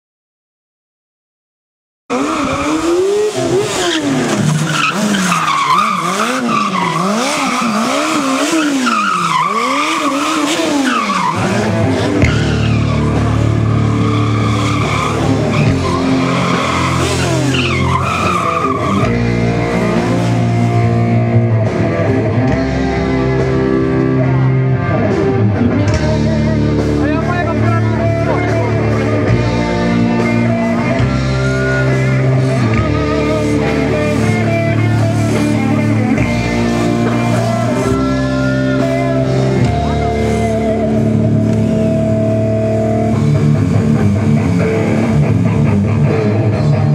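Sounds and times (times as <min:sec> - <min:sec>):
motorcycle engine revving: 0:02.1 - 0:46.9
rock music: 0:02.1 - 0:46.9
tyres squealing: 0:03.4 - 0:19.1.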